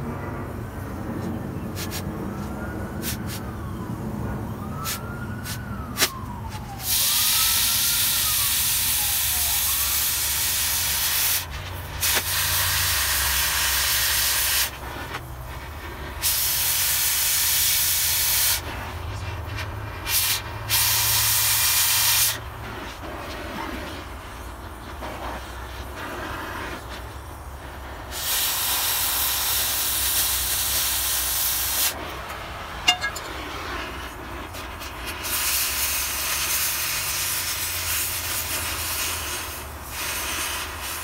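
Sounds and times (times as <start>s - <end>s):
distant siren: 0.1s - 11.0s
cutting torch hissing: 4.8s - 32.7s, 33.4s - 41.0s.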